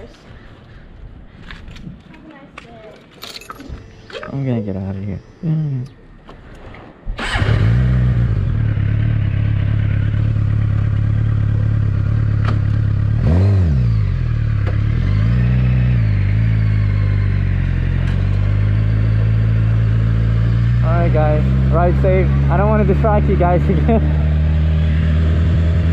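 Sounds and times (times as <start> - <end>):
motorcycle engine starting and idling: 6.4 - 25.9
motorcycle engine revving: 7.1 - 25.9.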